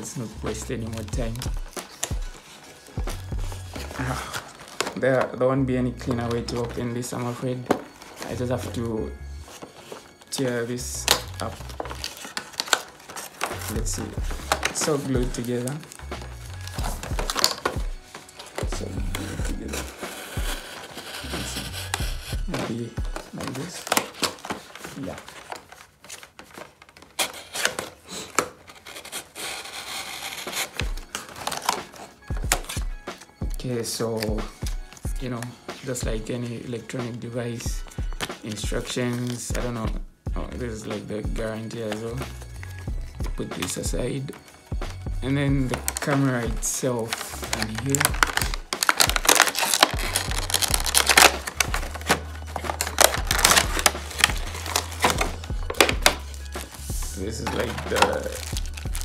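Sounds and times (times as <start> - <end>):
background music with bass: 0.0 - 4.6, 5.5 - 7.6, 8.2 - 9.5, 10.4 - 12.2, 13.4 - 23.8, 32.2 - 59.0
cardboard tearing: 0.0 - 5.4, 6.0 - 32.9, 45.7 - 59.0
packaging rustling and clicking: 0.0 - 5.4, 6.0 - 40.0, 45.7 - 59.0.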